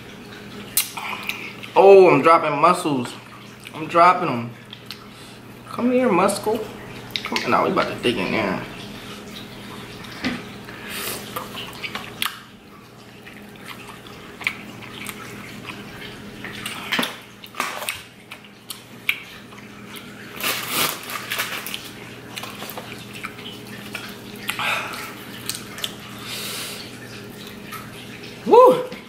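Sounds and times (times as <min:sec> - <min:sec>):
aquarium filter trickling: 0:00.0 - 0:29.0
wet chewing and slurping: 0:00.7 - 0:01.8, 0:13.3 - 0:27.9.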